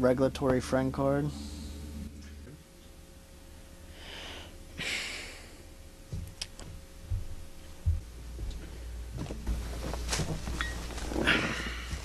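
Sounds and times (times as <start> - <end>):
footsteps on floor: 6.1 - 12.0
person sighing: 11.2 - 12.0.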